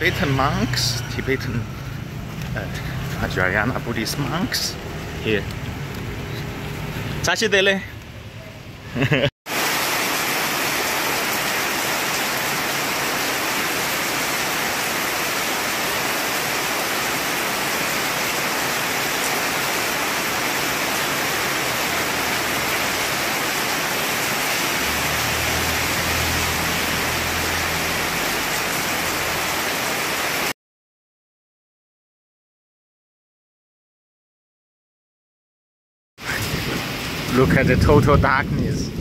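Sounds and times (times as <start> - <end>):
heavy rain on road: 0.0 - 3.8, 9.5 - 30.5, 36.2 - 39.0
passing vehicle engine hum: 24.7 - 29.4.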